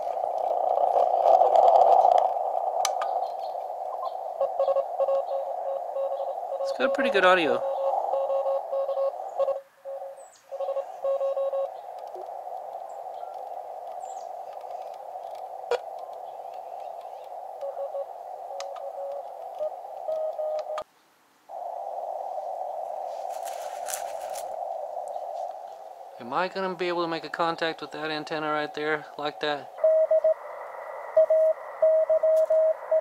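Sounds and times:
radio static hiss: 0.0 - 33.0
morse code tone: 4.4 - 11.7, 17.6 - 20.8, 29.8 - 33.0.

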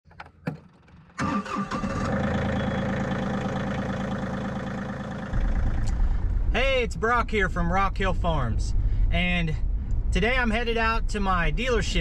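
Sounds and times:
truck engine cranking and idling: 0.4 - 11.0
deep low rumble: 2.4 - 12.0.

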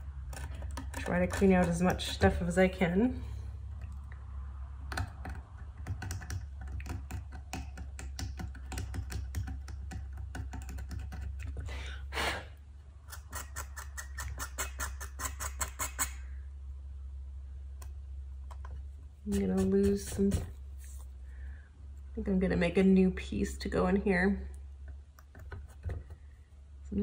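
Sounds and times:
steady low hum: 0.0 - 27.0
knife scraping under veneer: 0.5 - 2.5, 19.2 - 21.0.

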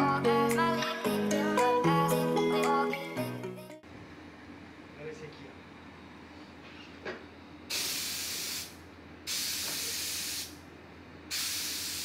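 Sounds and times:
air hissing bursts: 7.7 - 10.6, 11.3 - 12.0.

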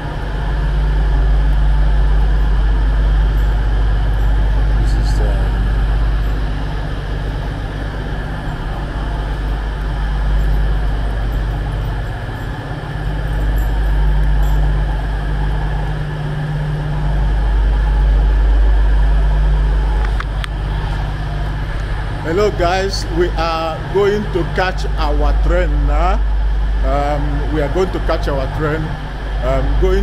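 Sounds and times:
diesel train engines idling: 0.0 - 30.0.

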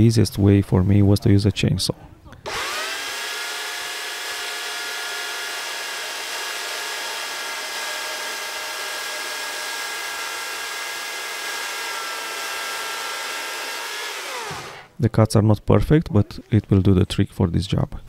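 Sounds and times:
electric chainsaw cutting timber: 2.5 - 15.0.

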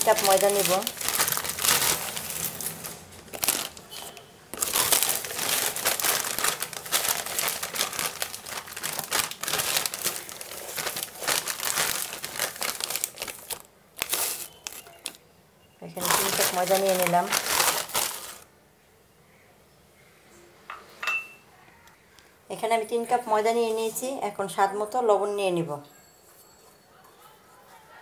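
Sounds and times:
flour rustling and crinkling: 0.0 - 15.2, 15.9 - 18.5.

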